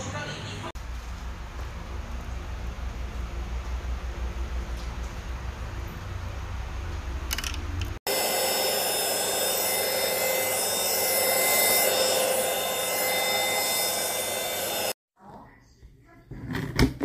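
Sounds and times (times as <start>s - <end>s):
vacuum cleaner running: 8.1s - 15.0s.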